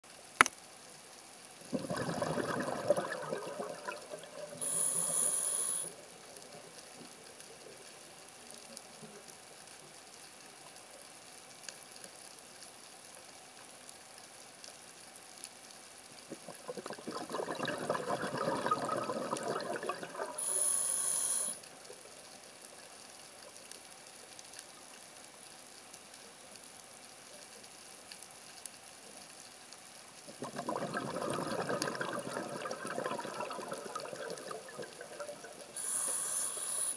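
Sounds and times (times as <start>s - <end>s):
exhaled bubbles gurgling underwater: 1.6s - 7.7s, 16.3s - 21.5s, 30.3s - 36.9s
regulator hissing inhalation: 4.6s - 6.0s, 20.4s - 21.6s, 35.7s - 36.9s.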